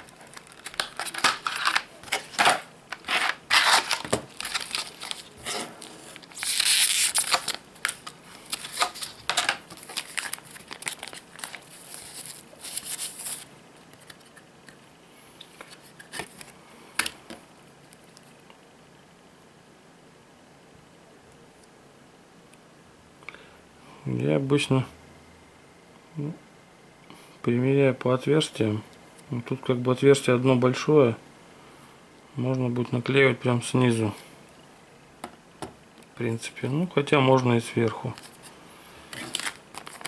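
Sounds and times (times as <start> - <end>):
plastic packaging crinkling and rustling: 0.0 - 14.4, 39.1 - 40.0.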